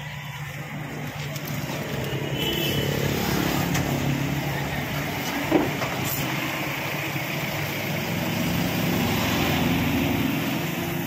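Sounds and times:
road traffic engine hum: 0.0s - 11.0s.

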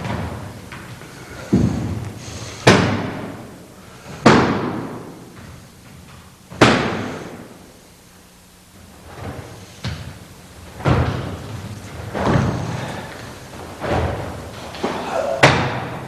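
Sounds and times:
bodies slamming onto mat: 10.8s - 16.0s.

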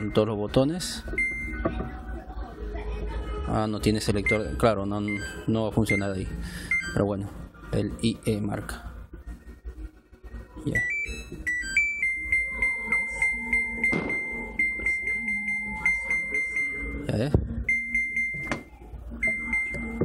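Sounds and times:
electronic buzzer beeping: 10.7s - 20.0s.

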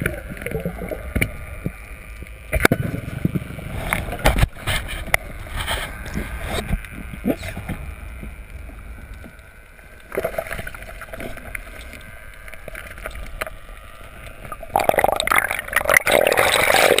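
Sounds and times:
clicks underwater: 0.0s - 9.4s, 10.0s - 17.0s
muffled underwater movement: 0.0s - 17.0s
rush of bubbles and churning water: 10.1s - 13.4s, 14.3s - 17.0s.

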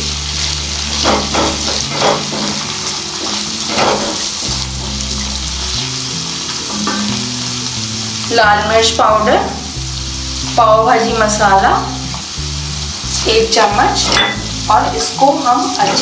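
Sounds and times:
onions sizzling in a pan: 0.0s - 16.0s
wooden spatula scraping a pan: 0.9s - 4.4s.

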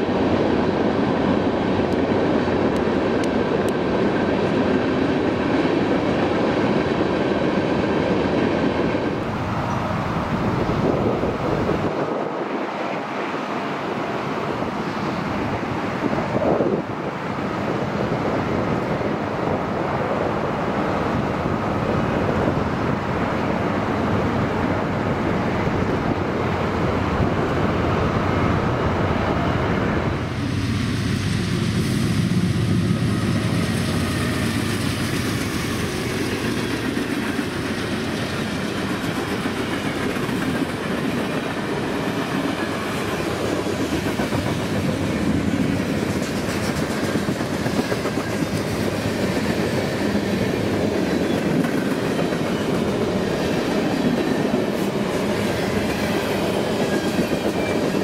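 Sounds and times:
wind on microphone: 0.0s - 33.3s
distant train: 0.0s - 58.0s
freight train wheels clattering: 30.3s - 58.0s.

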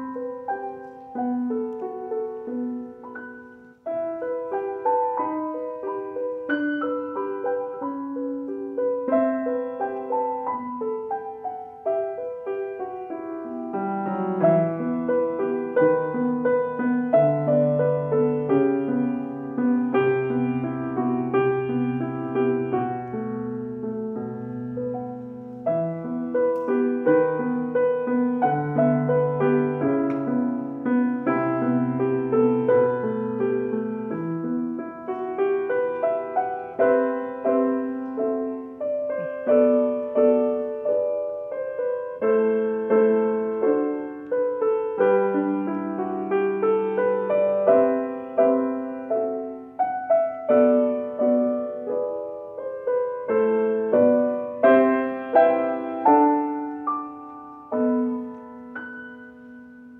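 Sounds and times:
gentle piano piece: 0.0s - 59.9s.

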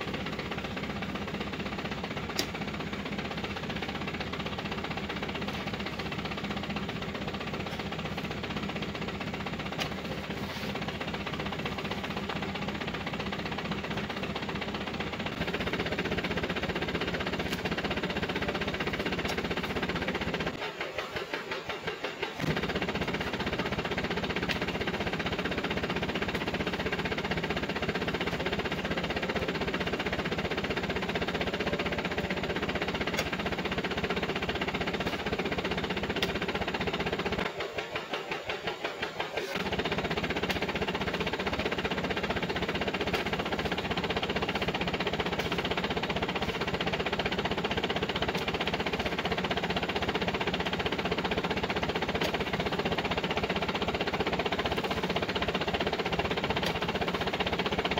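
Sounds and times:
truck engine idling: 0.0s - 57.9s.

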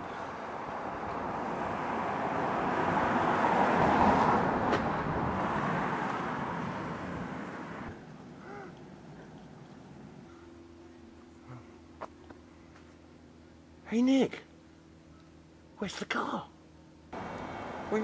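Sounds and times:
vehicle passing: 0.0s - 8.1s, 17.1s - 18.0s.

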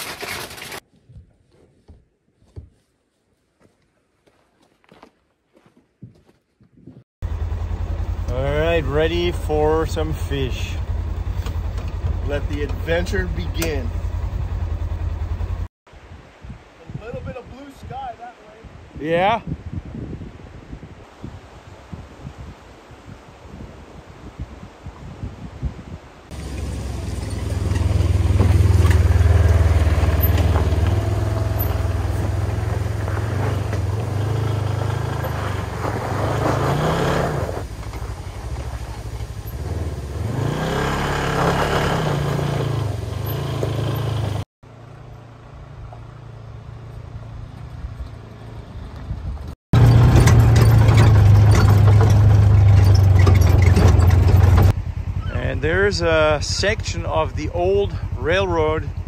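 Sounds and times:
tyres on rocky gravel: 0.0s - 2.5s, 3.6s - 7.6s, 26.3s - 44.5s, 47.4s - 54.8s
utility vehicle engine running: 7.2s - 15.7s, 26.3s - 59.0s.

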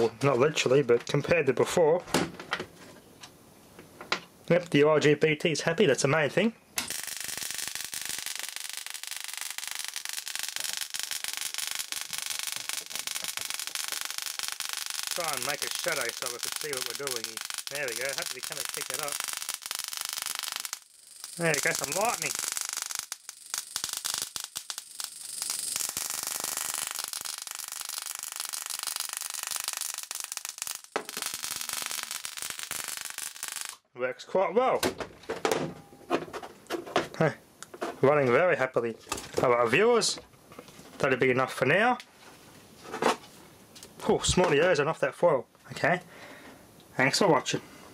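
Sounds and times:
high-voltage sparks crackling: 6.8s - 33.8s.

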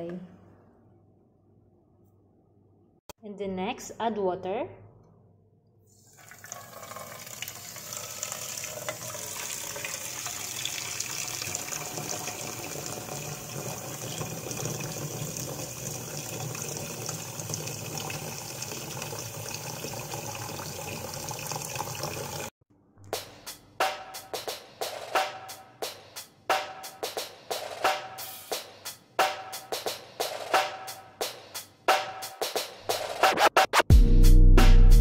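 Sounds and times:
tap water pouring into a pot: 6.0s - 22.5s.

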